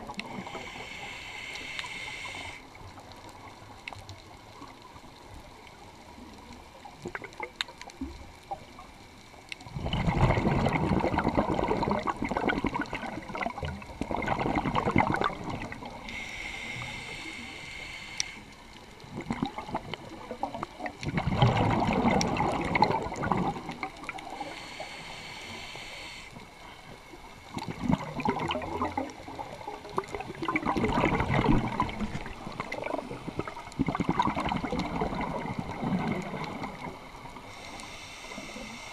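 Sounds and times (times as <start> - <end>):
exhaled air bubbling: 0.0 - 5.6, 6.3 - 8.9, 9.6 - 38.9
regulator inhale hiss: 0.1 - 2.8, 15.9 - 18.8, 24.2 - 27.0, 37.4 - 38.9.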